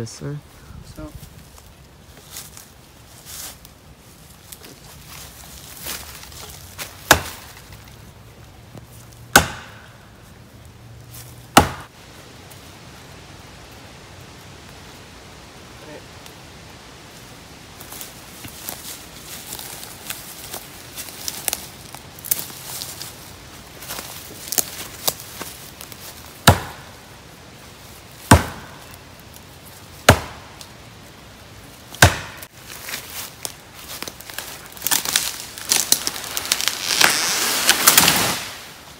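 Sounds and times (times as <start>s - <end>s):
axe chopping into tree: 6.8s - 7.6s, 9.3s - 9.9s, 11.5s - 11.9s, 26.4s - 26.9s, 28.2s - 28.8s, 30.0s - 30.6s, 32.0s - 32.5s.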